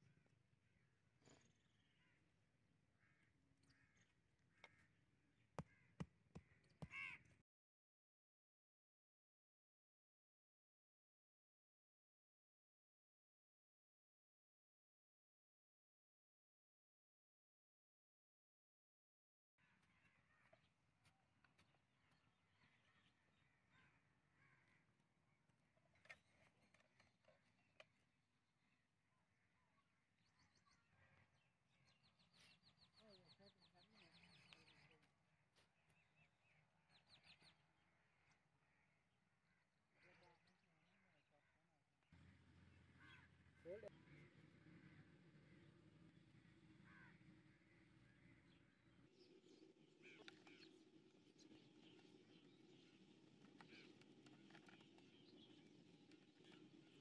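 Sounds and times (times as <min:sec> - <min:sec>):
faint bird calls: 0:00.0 - 0:07.4, 0:19.6 - 0:28.0, 0:42.2 - 0:57.0
outdoor background noise: 0:00.0 - 0:07.4, 0:19.6 - 0:57.0
small birds chirping: 0:03.0 - 0:07.3, 0:28.7 - 0:38.9, 0:42.2 - 0:57.0.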